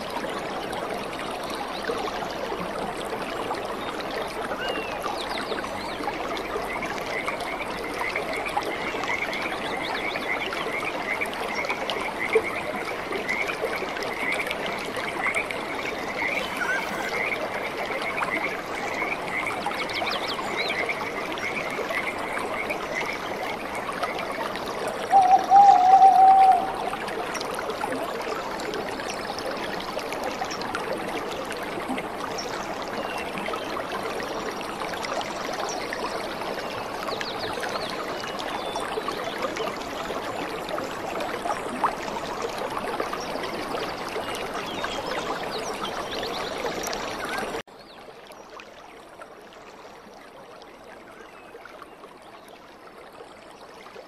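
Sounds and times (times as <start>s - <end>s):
stream running over rocks: 0.0s - 54.0s
loud warbling call: 16.2s - 17.3s, 25.1s - 26.9s.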